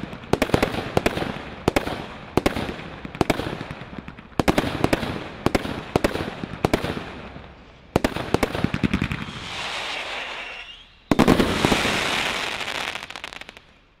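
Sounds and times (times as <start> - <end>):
firework bangs: 3.3 - 13.8
firework crackling: 4.0 - 14.0
firework hiss: 7.6 - 13.7.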